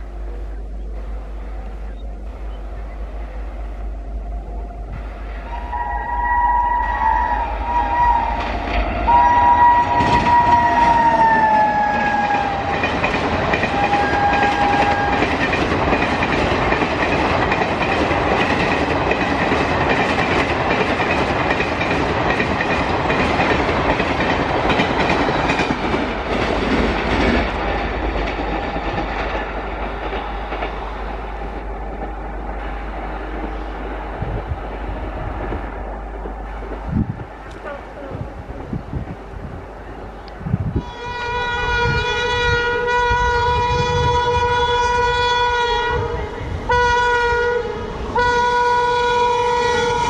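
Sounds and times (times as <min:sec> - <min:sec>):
locomotive horn blasts: 0:05.4 - 0:12.9, 0:13.6 - 0:15.4, 0:40.8 - 0:50.0
train wheels clattering over rail joints: 0:09.9 - 0:37.7.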